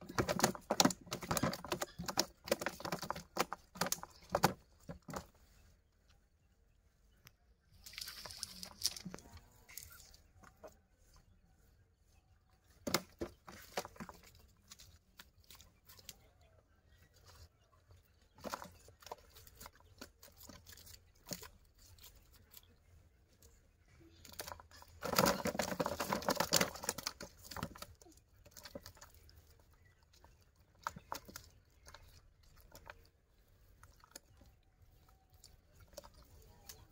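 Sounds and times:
cast net rustling: 7.7 - 10.7.

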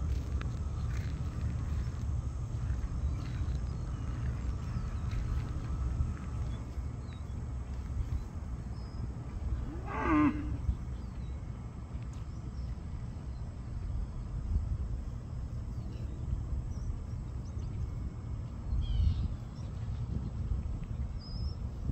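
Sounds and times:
steady low rumble: 0.0 - 21.9
cow mooing: 9.6 - 10.7
faint bird chirps: 18.7 - 20.1.

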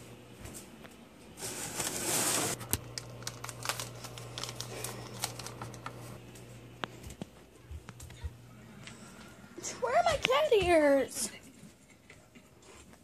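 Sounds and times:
wrapper crinkling: 1.4 - 6.2.

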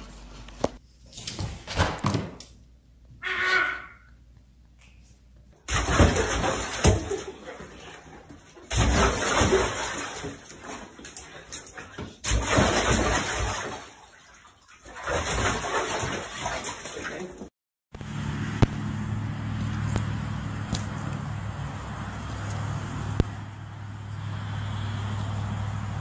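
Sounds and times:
low mechanical hum: 0.0 - 1.7, 18.0 - 26.0
water sloshing and splashing: 5.7 - 17.5.

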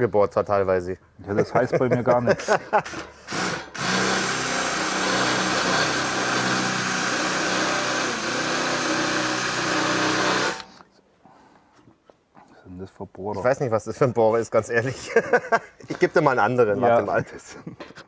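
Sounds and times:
cordless drill boring into wood: 2.9 - 10.8.

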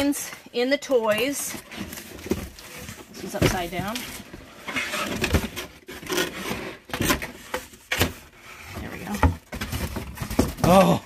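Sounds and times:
cardboard rubbing and scraping: 1.6 - 7.6.

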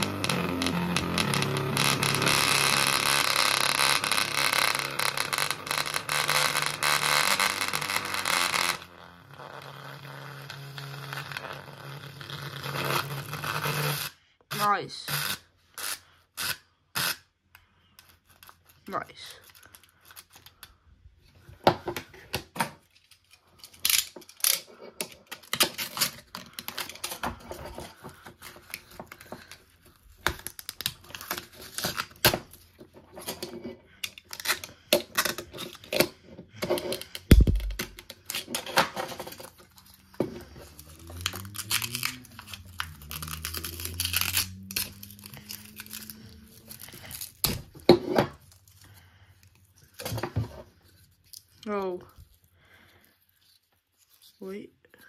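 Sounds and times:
paper scraping cracking and tearing: 0.0 - 14.1, 22.8 - 36.0, 36.7 - 49.2
loud knock: 37.3 - 37.9.

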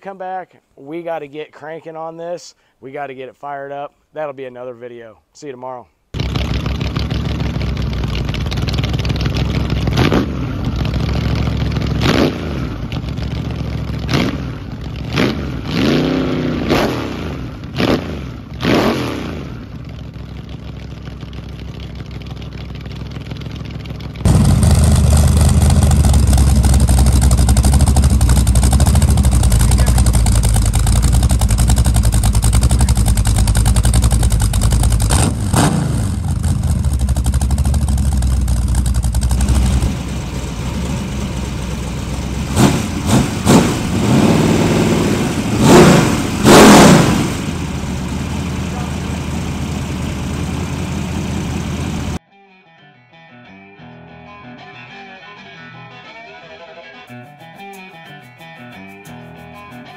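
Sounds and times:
engine revving: 6.2 - 20.0, 24.2 - 52.2
engine running steady: 6.2 - 52.2.

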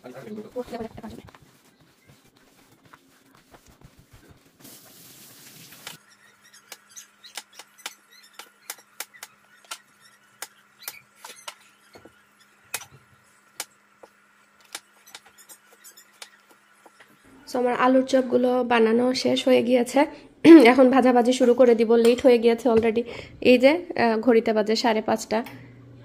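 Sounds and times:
faint steady hum: 23.0 - 26.0.

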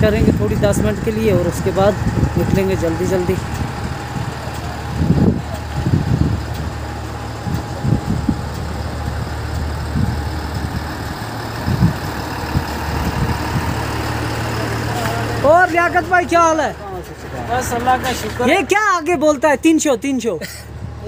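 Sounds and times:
short low rumbles: 0.0 - 18.5
truck engine idling: 0.0 - 21.0.

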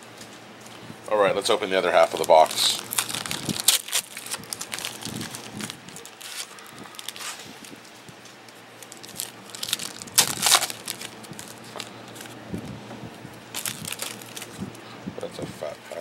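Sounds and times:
plastic wrappers tearing and crinkling: 1.8 - 7.9, 8.5 - 12.4, 13.5 - 14.8.

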